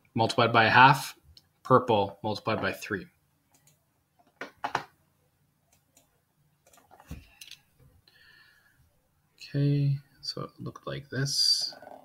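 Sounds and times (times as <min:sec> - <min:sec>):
computer mouse clicks: 0:03.5 - 0:03.8, 0:05.7 - 0:07.6.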